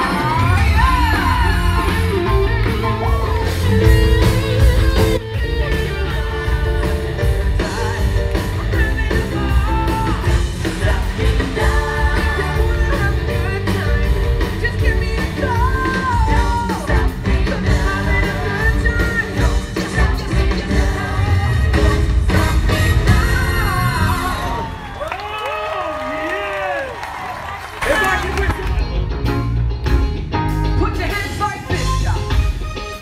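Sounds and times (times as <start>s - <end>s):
electric guitar: 0.0s - 24.7s
drums: 0.0s - 33.0s
person singing: 5.3s - 24.7s.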